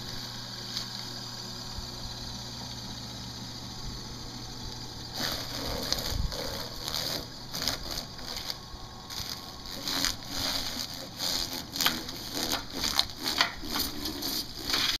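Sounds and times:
chicken plucker slapping and rasping: 0:05.1 - 0:15.0.

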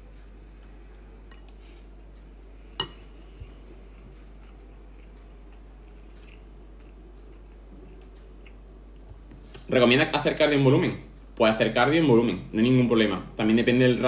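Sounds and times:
quiet chewing: 0:00.0 - 0:09.7
low background hum: 0:00.0 - 0:14.0.

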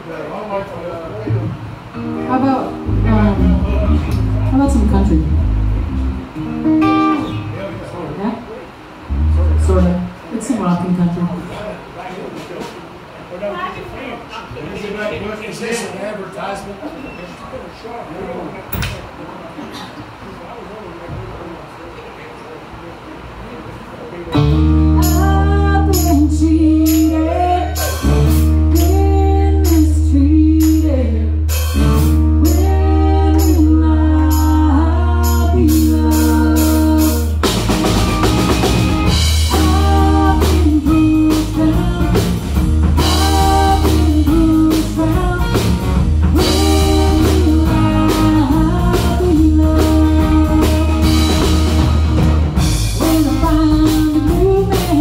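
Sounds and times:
bass guitar: 0:01.3 - 0:07.7, 0:09.0 - 0:10.2, 0:24.4 - 0:55.0
drum kit: 0:01.3 - 0:07.8, 0:09.0 - 0:10.2, 0:24.3 - 0:55.0
electric guitar: 0:01.3 - 0:07.8, 0:09.0 - 0:10.2, 0:24.3 - 0:55.0
woman singing lead: 0:25.0 - 0:31.4, 0:32.4 - 0:37.5, 0:39.4 - 0:51.7, 0:53.0 - 0:55.0.

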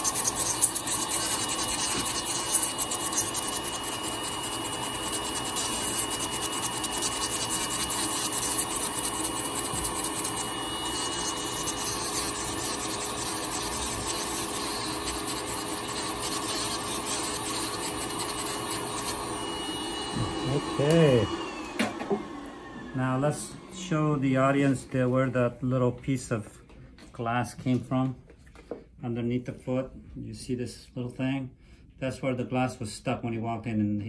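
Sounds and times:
thin high whine: 0:00.0 - 0:22.1
nail drill grinding toenail: 0:00.0 - 0:22.3.

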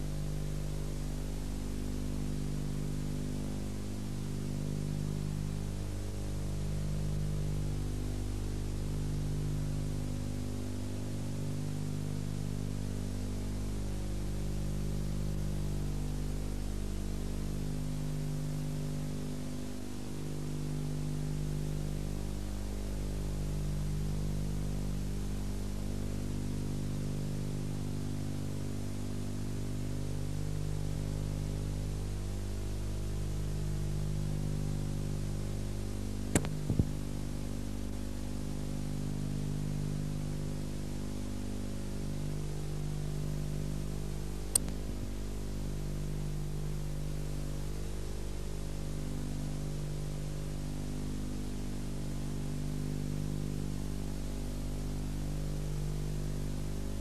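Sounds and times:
electrical hum: 0:00.0 - 0:57.0
tape hiss: 0:00.0 - 0:57.0
brief sharp clicks: 0:36.3 - 0:36.9, 0:44.5 - 0:44.8.

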